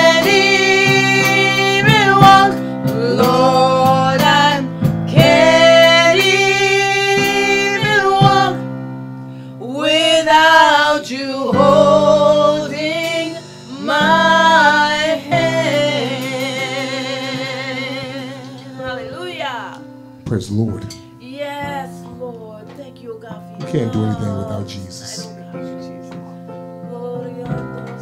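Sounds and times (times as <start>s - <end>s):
person singing with vibrato: 0.0s - 8.8s, 9.5s - 19.5s, 23.6s - 25.9s
sustained instrumental chords: 11.3s - 28.0s.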